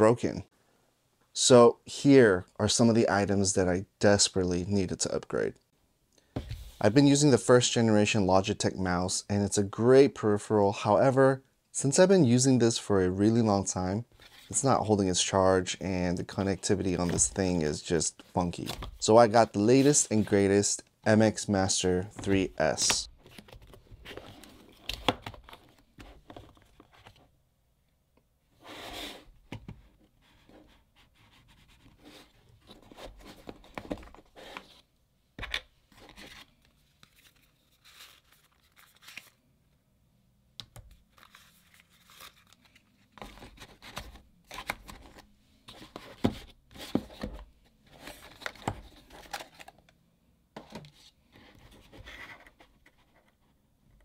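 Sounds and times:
paper and plastic rustling: 35.9 - 39.4, 41.0 - 49.8.

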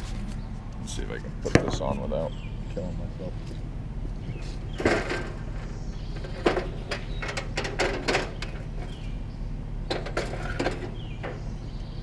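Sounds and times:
steady low hum: 0.0 - 12.0
metal clanks and rattles: 4.7 - 9.2, 9.8 - 11.6.

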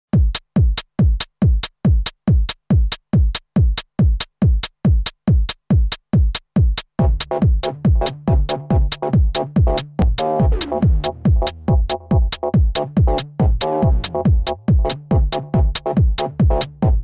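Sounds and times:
drum machine kick: 0.1 - 17.0
hi-hat: 0.2 - 17.0
synth bass note: 7.0 - 17.0.

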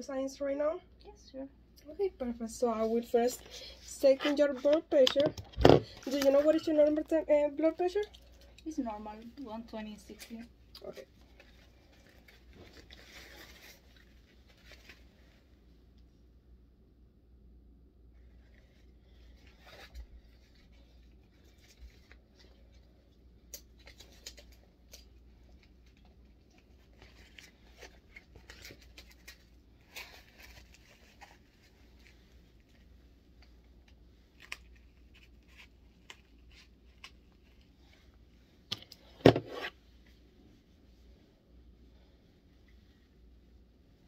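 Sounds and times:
fabric and velcro rustling: 5.9 - 15.4, 18.2 - 38.3.

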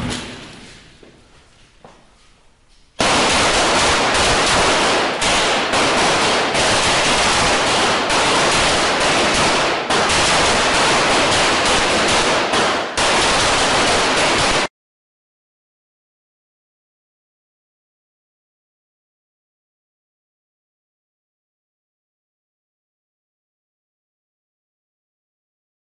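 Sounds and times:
pistol gunfire: 3.0 - 14.7.

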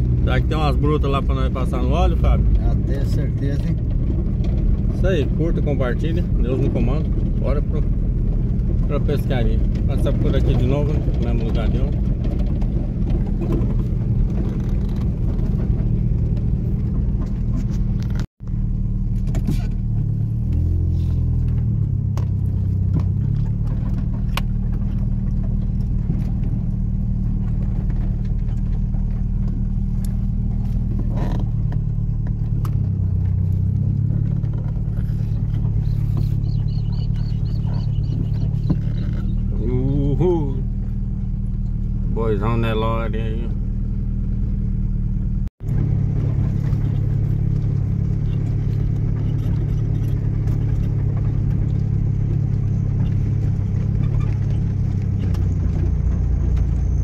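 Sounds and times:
vehicle engine running: 0.0 - 57.0
knocks and rattles: 2.0 - 18.3, 21.4 - 39.6.

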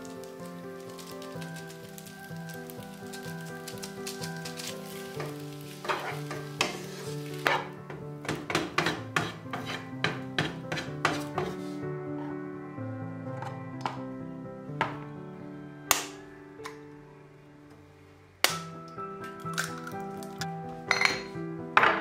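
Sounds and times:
noodles sizzling in a frying pan: 0.0 - 9.7
light background music: 0.0 - 22.0
spatula scraping a pan: 4.5 - 12.4.

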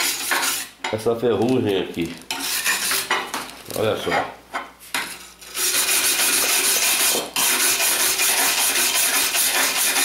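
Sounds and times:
wire brush scrubbing steel: 0.0 - 0.7, 2.3 - 3.1, 5.5 - 10.0.

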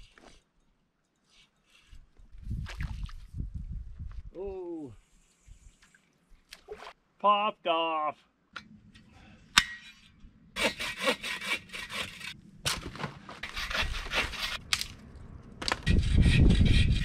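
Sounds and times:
hand saw cutting branches: 10.6 - 12.4, 13.4 - 14.9.

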